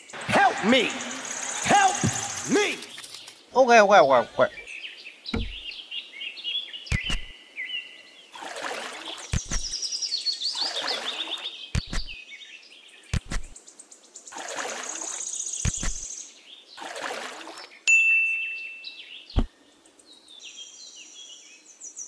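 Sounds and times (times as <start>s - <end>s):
birds chirping: 0.0s - 22.0s
water sloshing and splashing: 0.3s - 3.3s, 5.4s - 5.7s, 6.9s - 7.3s, 8.4s - 9.8s, 10.5s - 12.2s, 14.3s - 16.0s, 16.8s - 17.8s
sharp clicks: 6.9s - 7.3s, 9.3s - 9.8s, 11.8s - 12.2s, 13.1s - 13.6s, 15.6s - 16.0s.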